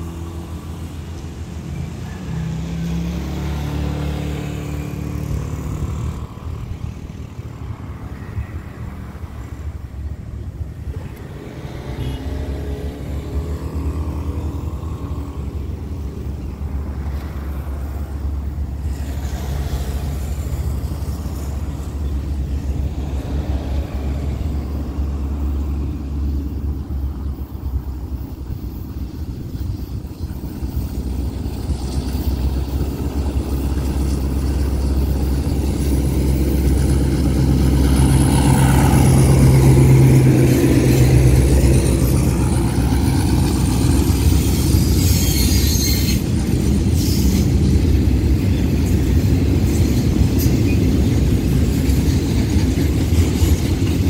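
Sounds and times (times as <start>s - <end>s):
diesel locomotive engine rumble: 0.0s - 54.0s
train wagons rolling past: 0.0s - 54.0s
wheels clicking over rail joints: 14.6s - 54.0s.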